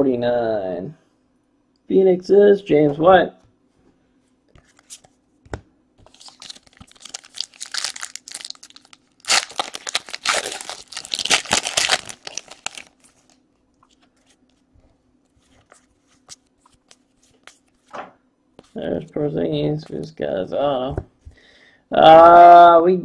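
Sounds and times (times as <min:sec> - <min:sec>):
foil wrapper tearing and crinkling: 0:06.1 - 0:13.4.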